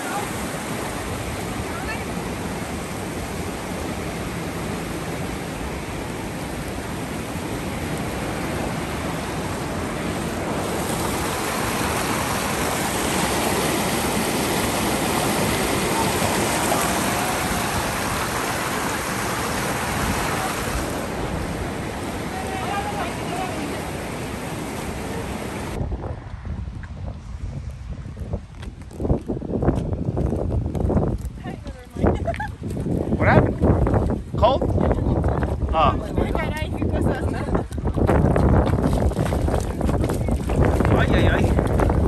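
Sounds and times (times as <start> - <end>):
river rushing in whitewater: 0.0 - 25.8.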